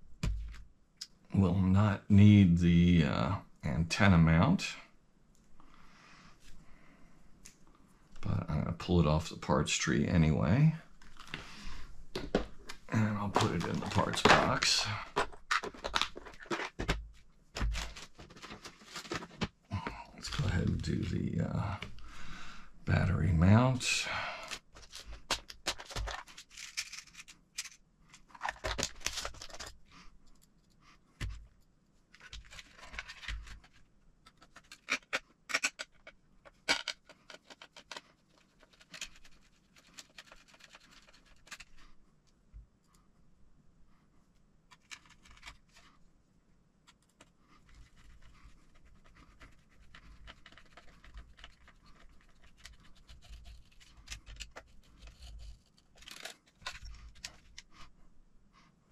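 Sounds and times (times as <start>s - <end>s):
plastic parts scraping and rustling: 10.9s - 22.2s, 23.0s - 42.0s, 44.7s - 46.1s, 46.8s - 58.0s.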